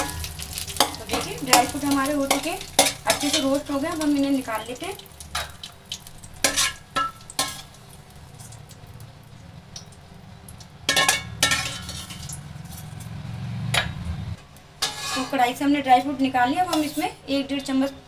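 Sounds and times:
metal spoon scraping a pan: 0:00.0 - 0:04.4, 0:06.4 - 0:07.8, 0:10.9 - 0:14.0, 0:14.8 - 0:18.0.

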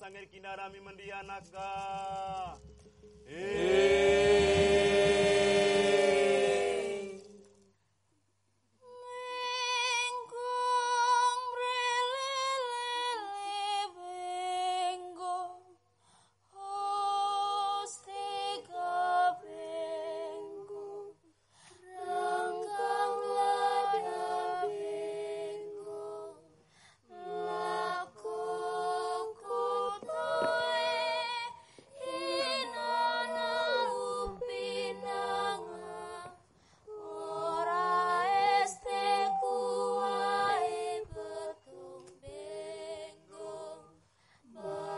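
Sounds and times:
voices singing chant-like melody: 0:01.4 - 0:07.7, 0:21.8 - 0:44.9
lower voice singing: 0:03.2 - 0:07.4, 0:27.1 - 0:43.9.

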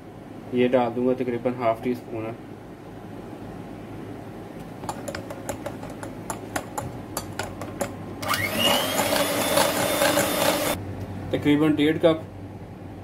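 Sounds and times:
electric mixer motor whining: 0:08.2 - 0:10.8.

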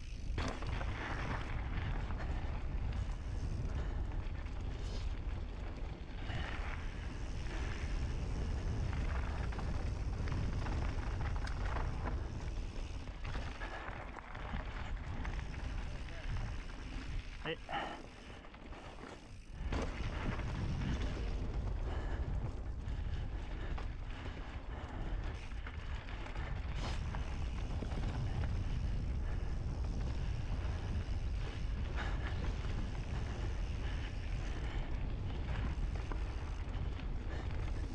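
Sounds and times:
bike clattering: 0:00.0 - 0:17.4
wind buffeting microphone: 0:00.0 - 0:17.4, 0:19.2 - 0:37.9
bike tyres on dirt: 0:00.0 - 0:37.9.

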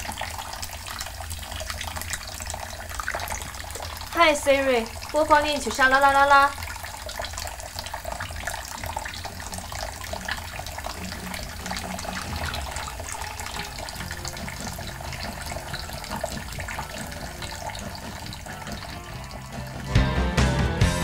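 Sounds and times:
water dripping: 0:00.0 - 0:20.1
tap running into metal sink: 0:08.4 - 0:20.0.

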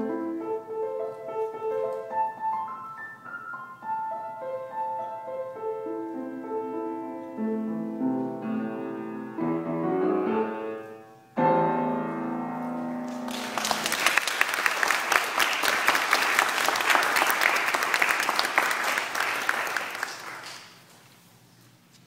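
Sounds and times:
grand piano chord: 0:02.0 - 0:13.9
audience applauding: 0:13.1 - 0:20.8.

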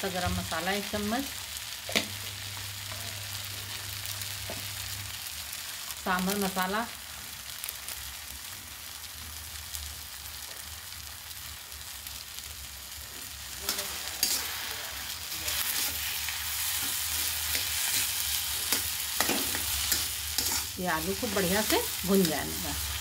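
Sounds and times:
food sizzling in a pan: 0:00.0 - 0:23.0
spatula scraping a pan: 0:13.6 - 0:22.0.

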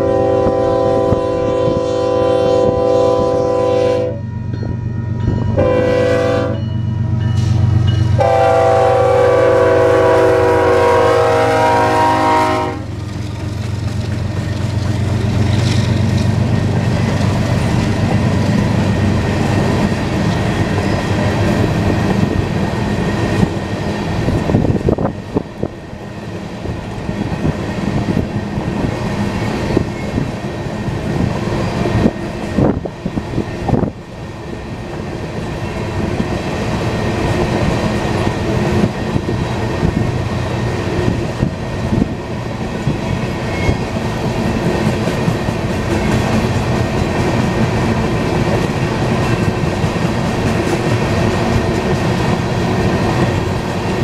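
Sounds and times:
locomotive air horn blowing: 0:00.0 - 0:04.3, 0:05.6 - 0:06.7, 0:07.4 - 0:13.0
train wheels clattering: 0:12.6 - 0:25.8, 0:26.7 - 0:54.0.

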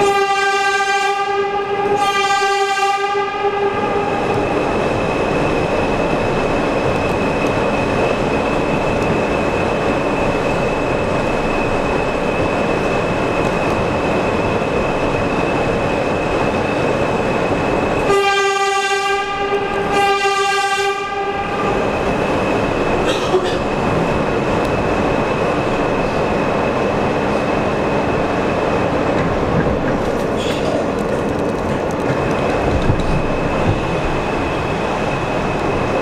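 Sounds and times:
train horn blasts: 0:00.0 - 0:04.2, 0:18.0 - 0:21.8
wheels roaring on rail: 0:00.0 - 0:36.0.

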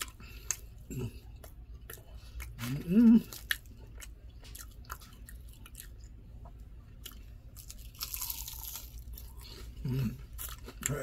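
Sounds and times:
person chewing food: 0:00.0 - 0:11.0
crunch of biting onion ring: 0:07.0 - 0:11.0.

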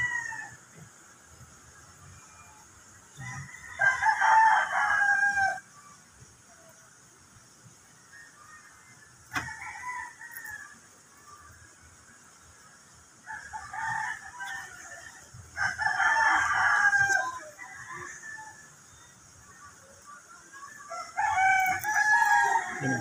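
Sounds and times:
rooster crowing: 0:00.0 - 0:00.8, 0:02.2 - 0:05.8, 0:09.3 - 0:10.8, 0:13.2 - 0:19.0, 0:20.9 - 0:23.0.

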